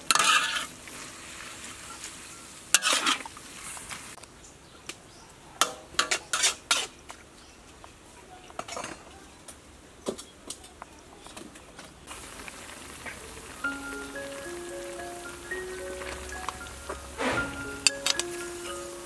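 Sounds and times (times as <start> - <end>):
faint sizzle: 0.0 - 4.2, 12.1 - 19.0
metal spatula scraping wok: 0.1 - 0.7, 2.8 - 3.2, 17.1 - 18.0.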